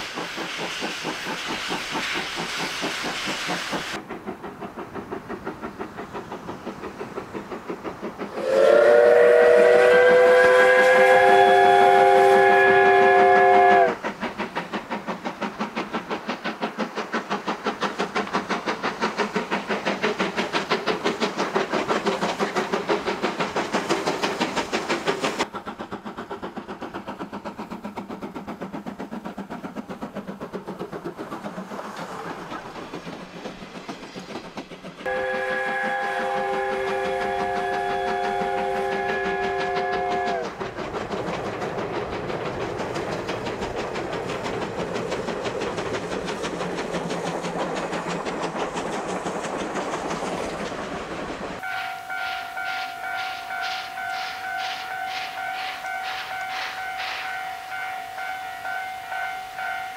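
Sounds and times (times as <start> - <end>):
steam locomotive chuffing: 0.0 - 59.9
steam whistle blast: 8.3 - 14.0, 35.1 - 40.5, 51.6 - 59.9.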